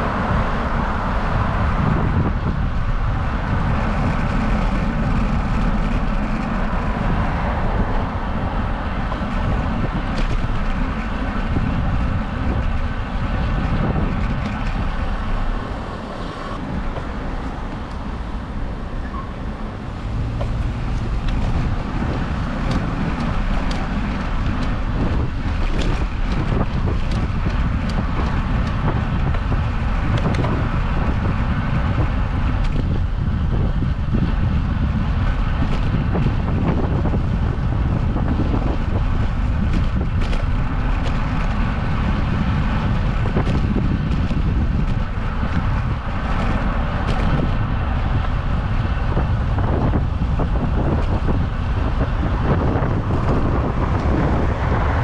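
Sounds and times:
tyre and road noise: 0.0 - 55.0
wind buffeting microphone: 0.0 - 55.0.

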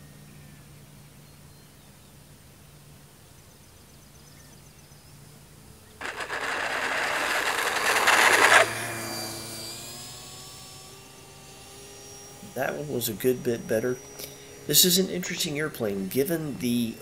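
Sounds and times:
loud rushing noise: 6.0 - 9.1
model plane motor whine: 6.0 - 17.0.

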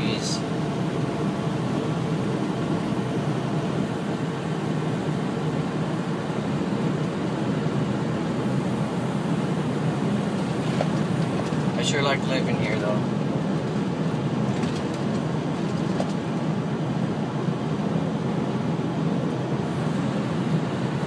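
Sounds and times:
road noise: 0.0 - 21.0
truck engine: 9.8 - 17.1.

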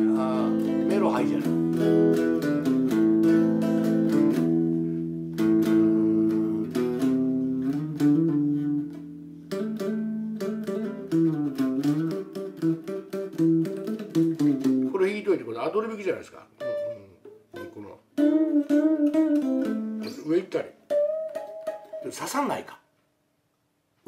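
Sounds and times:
electric guitar playing: 0.0 - 15.3, 16.5 - 22.6.

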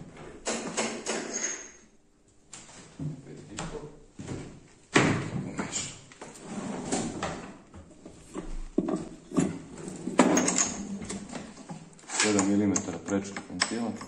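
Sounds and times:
metal parts and tools clunking: 8.4 - 14.0.

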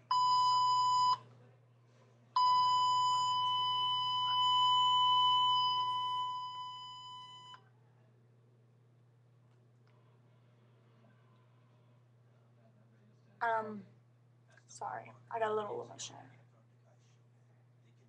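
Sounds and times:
high electronic censor beep: 0.0 - 1.2, 2.4 - 7.6.

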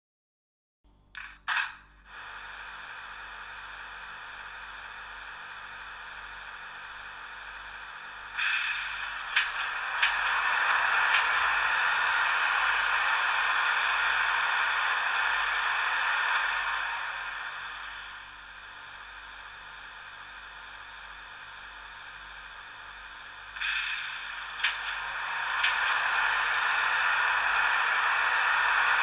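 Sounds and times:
hissy locomotive running noise: 1.5 - 29.0
high brake squeal: 12.4 - 14.5.

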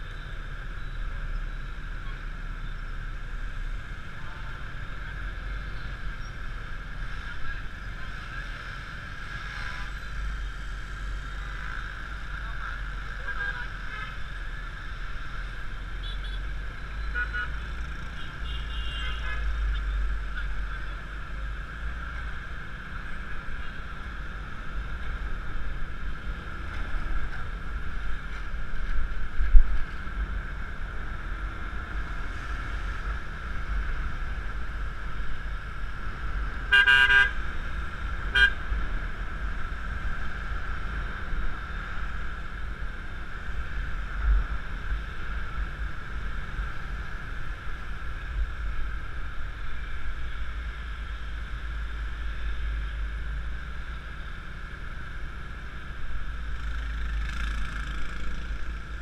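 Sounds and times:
wind and road noise: 0.0 - 59.0
vehicle horn honking: 18.2 - 19.4, 36.7 - 37.4, 38.3 - 38.6.

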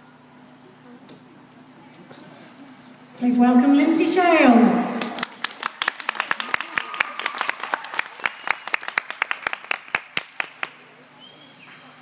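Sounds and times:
audience applauding: 5.0 - 10.9.

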